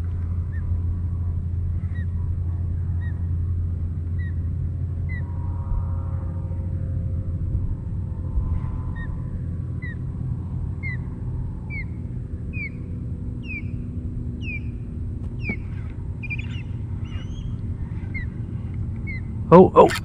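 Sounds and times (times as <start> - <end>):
steady low rumble: 0.0 - 20.0
bird whistling downward notes: 14.4 - 14.8, 15.4 - 18.3
bird chirps: 15.4 - 18.3.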